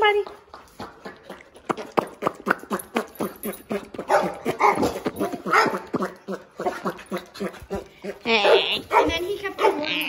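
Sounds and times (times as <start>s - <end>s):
dog barking and yipping: 2.5s - 10.0s.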